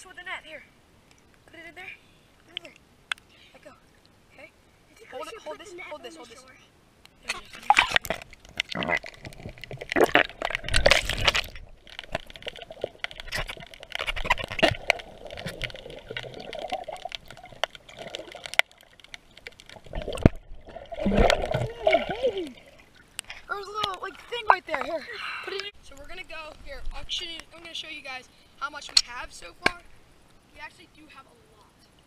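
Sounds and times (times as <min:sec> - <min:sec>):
muffled underwater splashing: 0:07.3 - 0:24.8
bubbling: 0:07.3 - 0:25.0.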